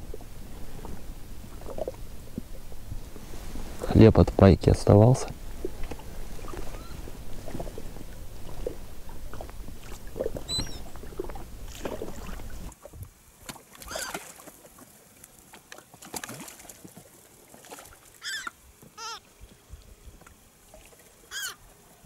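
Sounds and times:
gull call: 6.4s - 7.0s, 10.5s - 10.9s, 13.8s - 14.2s, 18.2s - 19.3s, 21.3s - 21.6s.

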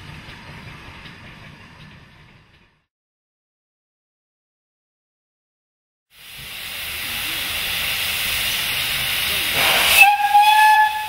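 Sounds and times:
steam blowing off hissing: 6.2s - 11.0s
steam whistle: 9.6s - 11.0s.

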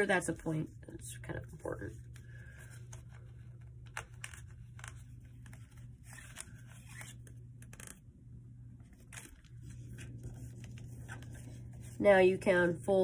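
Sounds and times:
steady low hum: 0.0s - 13.0s
paper rustling and crinkling: 2.0s - 8.0s, 8.8s - 12.0s.

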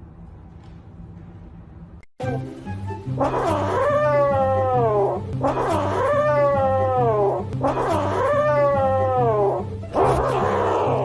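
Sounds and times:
low background music: 0.0s - 11.0s
cat yowling: 3.2s - 11.0s.

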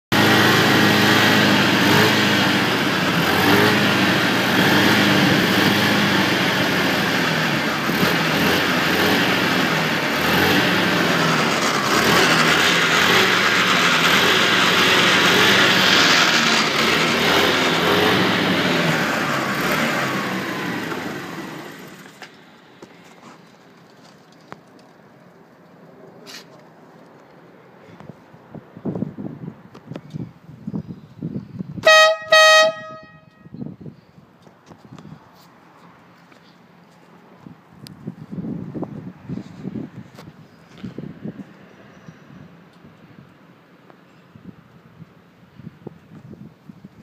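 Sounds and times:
scooter engine revving: 0.1s - 22.2s.

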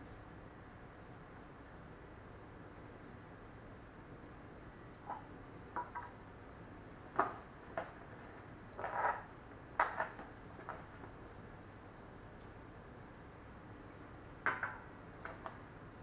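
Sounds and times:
glass cup on stone countertop: 5.0s - 6.2s, 8.8s - 10.8s, 14.4s - 14.9s.

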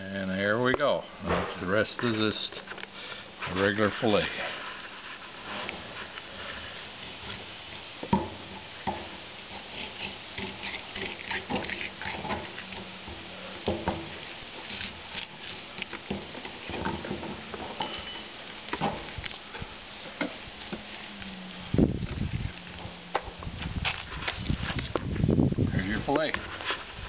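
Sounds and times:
knife slicing fish: 9.5s - 12.3s.

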